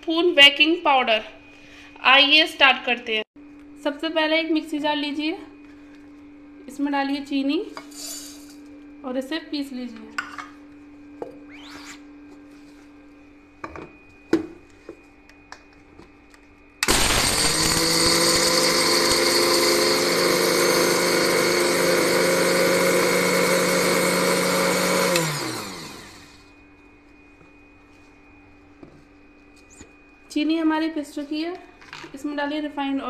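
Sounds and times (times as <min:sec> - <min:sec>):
mixer grinder motor running: 0:16.8 - 0:26.5.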